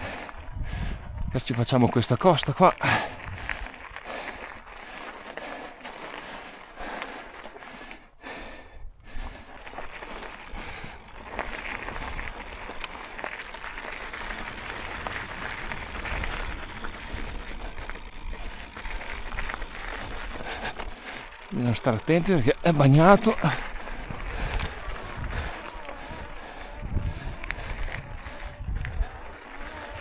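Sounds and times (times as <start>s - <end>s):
wind rumbling on microphone: 0.0s - 1.6s, 3.1s - 4.0s, 10.2s - 21.6s, 23.4s - 30.0s
bike rattling over bumps: 3.2s - 8.0s, 9.6s - 30.0s
tyres crunching on rocks: 9.7s - 23.9s.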